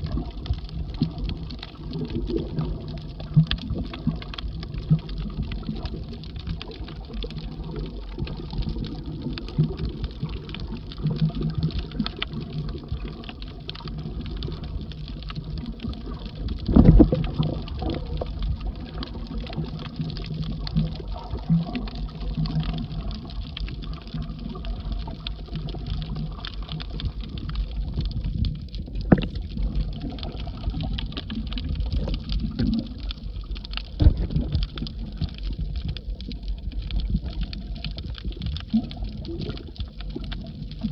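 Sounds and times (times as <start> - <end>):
faint crackling clicks: 0.0 - 40.9
underwater low rumble: 0.0 - 40.9
underwater thumps: 16.6 - 17.5, 29.0 - 29.5, 33.8 - 35.3.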